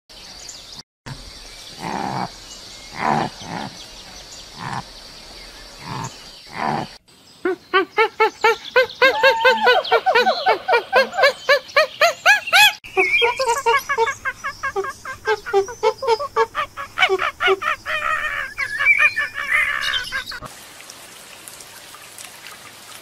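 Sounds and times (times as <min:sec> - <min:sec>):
high arching chirps: 0:01.1 - 0:20.5
deer grunting: 0:01.8 - 0:04.9, 0:05.8 - 0:07.0.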